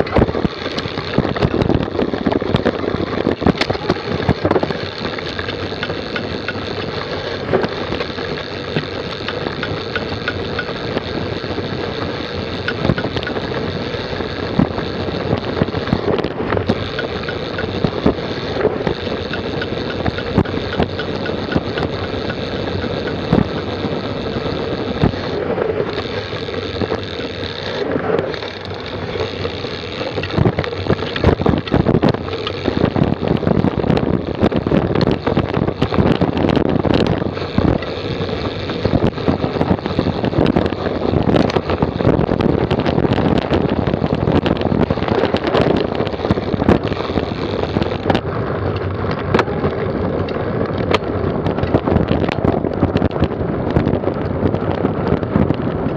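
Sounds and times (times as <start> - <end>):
bike chain rattling: 0.0 - 55.9
tyre and wind rushing: 0.0 - 55.9.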